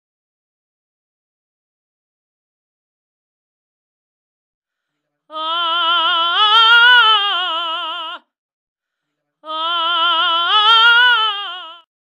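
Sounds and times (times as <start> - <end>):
woman singing with vibrato: 5.3 - 8.3, 9.4 - 11.9.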